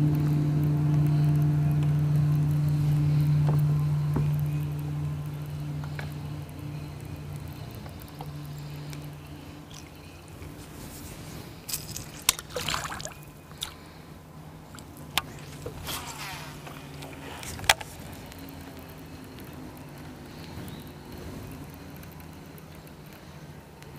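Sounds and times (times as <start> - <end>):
electric motor humming: 0.0 - 23.9
sharp clicks: 0.0 - 23.9
water splash: 11.6 - 14.0.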